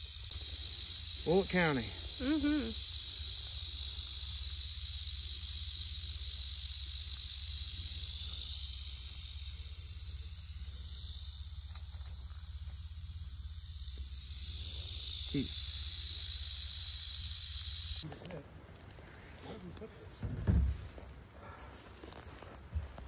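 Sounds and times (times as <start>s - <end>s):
rattlesnake rattling: 0.0s - 18.1s.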